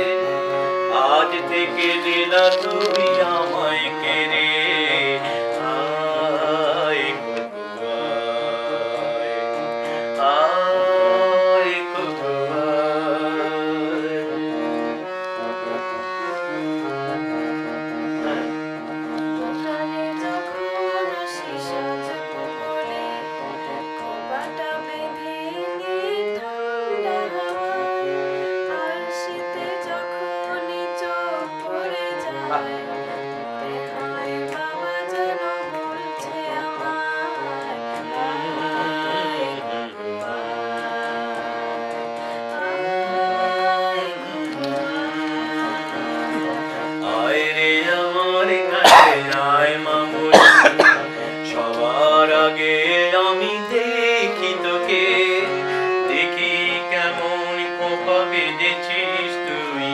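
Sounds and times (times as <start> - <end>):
man singing: 0.0 - 17.0, 31.4 - 59.9
harmonium: 0.0 - 59.9
girl singing: 24.3 - 26.4.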